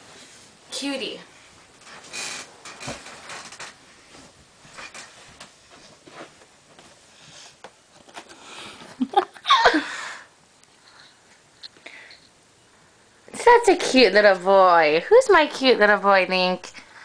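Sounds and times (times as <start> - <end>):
bedding rustling: 0.0 - 9.0.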